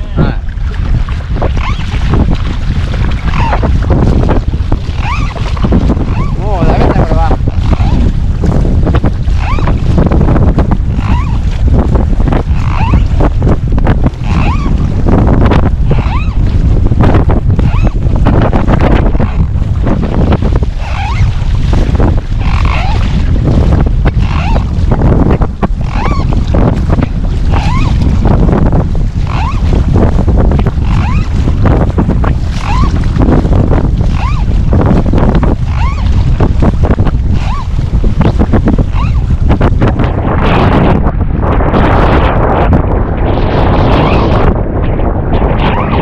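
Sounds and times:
water splashing from paddling: 0.0 - 10.0, 19.6 - 39.4
wind buffeting microphone: 0.0 - 46.0
short rising and falling squeak: 1.6 - 1.9, 5.0 - 5.4, 6.1 - 6.4, 9.4 - 9.8, 11.0 - 11.4, 12.6 - 13.1, 14.2 - 14.8, 15.9 - 16.4, 17.6 - 18.0, 20.8 - 21.3, 22.4 - 23.0, 24.2 - 24.6, 25.8 - 26.3, 27.5 - 28.0, 29.3 - 29.6, 30.8 - 31.3, 32.6 - 33.0, 34.1 - 34.5, 35.7 - 36.1, 37.4 - 37.7, 38.9 - 39.2.

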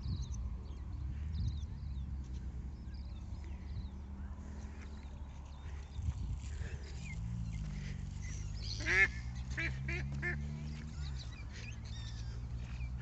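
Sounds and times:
waterfowl honking: 8.7 - 10.4.

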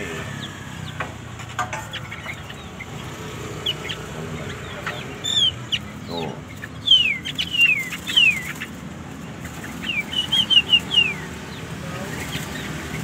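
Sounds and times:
birds whistling falling notes: 1.9 - 8.8, 9.4 - 13.0.

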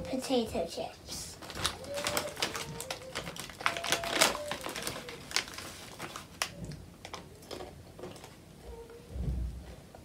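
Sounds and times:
chip bag rustling: 1.3 - 8.3.

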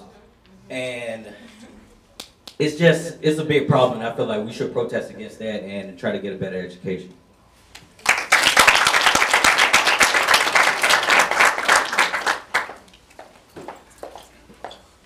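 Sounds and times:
audience applauding: 8.0 - 12.9.

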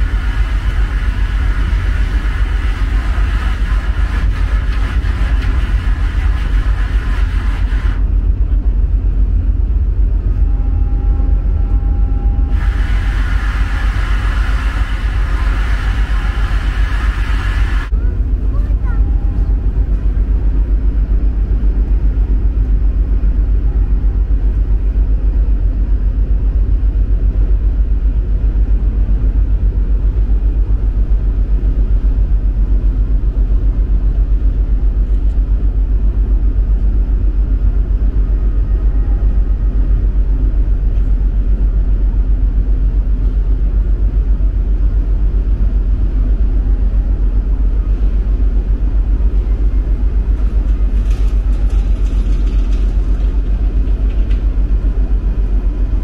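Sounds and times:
ferry engines rumbling: 0.0 - 56.0.

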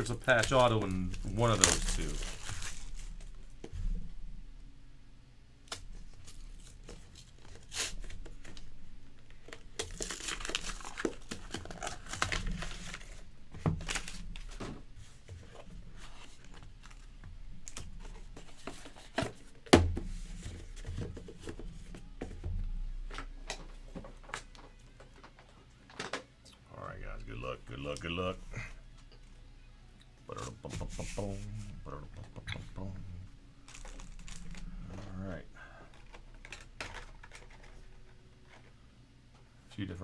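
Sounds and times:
cardboard tearing and crinkling: 0.0 - 3.2, 5.7 - 8.6, 9.4 - 13.2, 13.8 - 14.6, 33.7 - 35.2.

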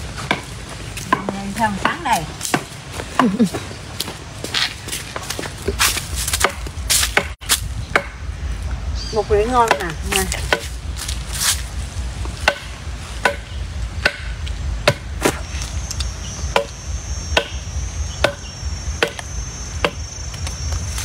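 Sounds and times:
machete chopping bamboo: 0.2 - 2.7, 5.6 - 8.2, 9.6 - 10.8, 12.4 - 15.5, 16.5 - 16.8, 17.4 - 17.6, 18.2 - 18.4, 19.0 - 20.0.

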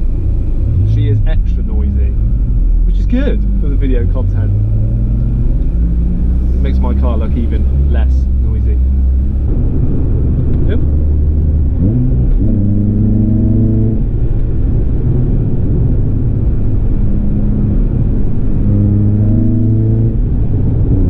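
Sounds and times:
car engine while driving: 0.0 - 21.0
road rumble: 0.0 - 21.0.

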